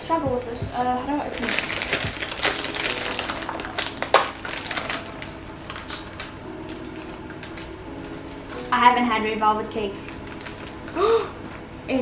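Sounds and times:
foil pouch crinkling: 0:01.2 - 0:08.9, 0:09.9 - 0:11.6.

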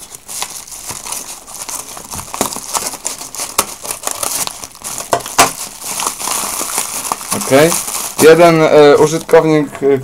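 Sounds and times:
packaging crinkling: 0:00.0 - 0:09.6
scissors cutting paper mailer: 0:00.8 - 0:08.3.

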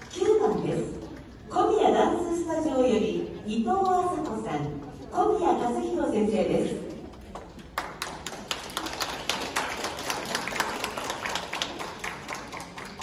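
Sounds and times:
audience applause: 0:07.6 - 0:13.0.

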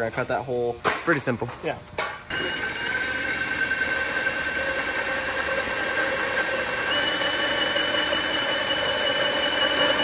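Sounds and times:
drill motor whine: 0:02.3 - 0:10.0.

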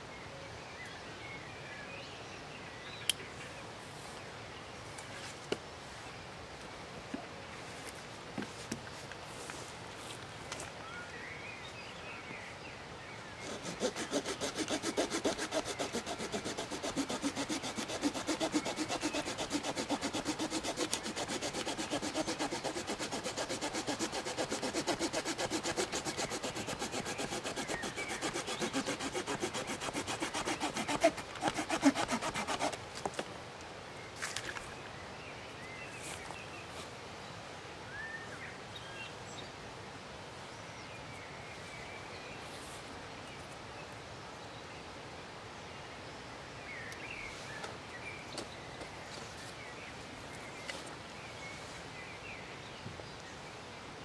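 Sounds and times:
hand saw cutting branch: 0:13.4 - 0:32.8.

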